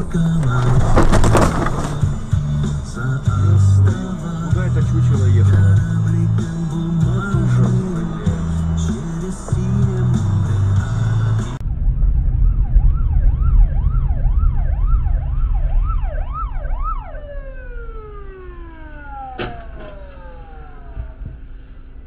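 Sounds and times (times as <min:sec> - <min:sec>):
car engine and road rumble: 0:00.0 - 0:22.0
descending siren tone: 0:11.6 - 0:22.0
emergency siren wailing: 0:11.7 - 0:22.0.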